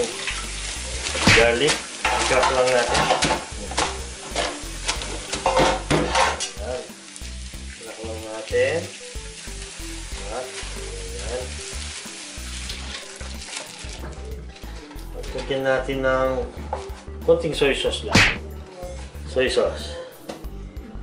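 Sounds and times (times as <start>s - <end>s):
soft background music: 0.0s - 21.0s.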